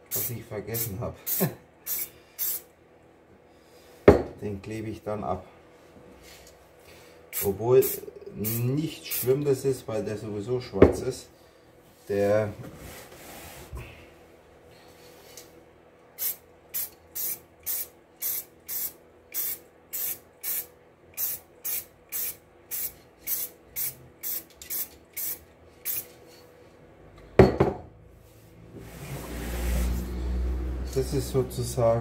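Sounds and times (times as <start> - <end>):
spray can hissing bursts: 0.1 - 2.7, 7.4 - 9.3, 16.2 - 26.1.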